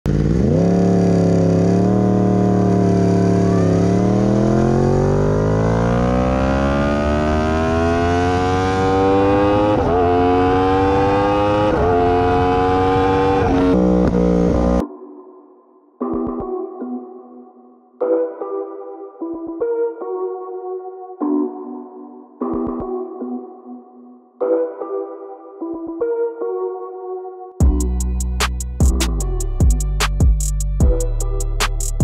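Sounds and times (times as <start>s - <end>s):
motorcycle engine accelerating: 0.1s - 14.8s.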